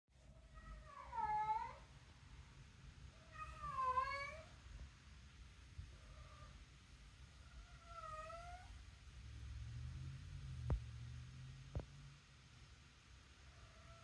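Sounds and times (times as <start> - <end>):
cat meowing: 0.4 - 1.9, 3.1 - 4.6, 7.4 - 8.8.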